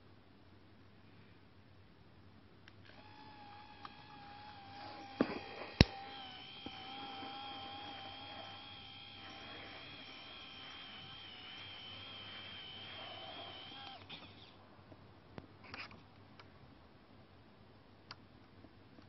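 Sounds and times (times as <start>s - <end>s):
sharp clicks: 2.7s - 14.3s
small motor whining: 2.8s - 14.6s.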